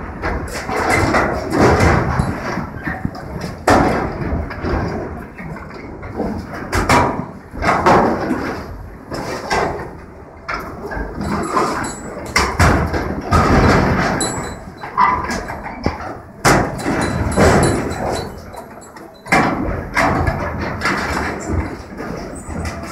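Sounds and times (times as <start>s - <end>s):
grapple crushing scrap metal: 16.4s - 21.5s.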